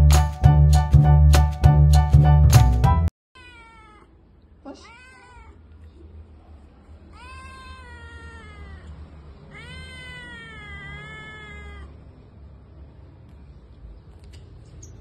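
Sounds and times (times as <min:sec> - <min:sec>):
kitten meowing: 0:03.4 - 0:04.1, 0:04.7 - 0:05.6, 0:07.1 - 0:12.0.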